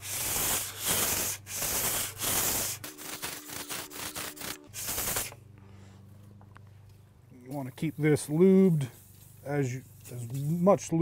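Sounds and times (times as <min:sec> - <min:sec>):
sandpaper rubbing on metal: 0:00.0 - 0:05.4, 0:07.8 - 0:11.0.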